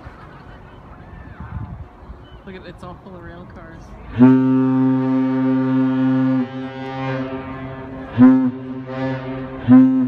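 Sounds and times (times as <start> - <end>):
deep ship air horn blasts: 4.1 - 10.0.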